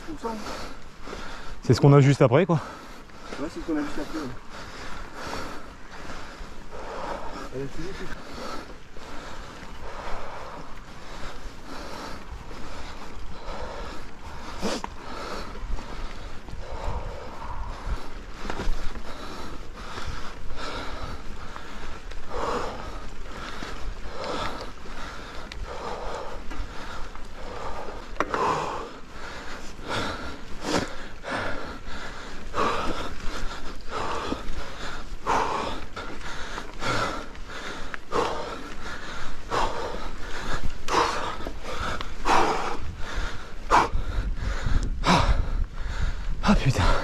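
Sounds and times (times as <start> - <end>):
person breathing heavily: 0.0 - 1.7, 2.5 - 47.0
steady low rumble: 2.6 - 47.0.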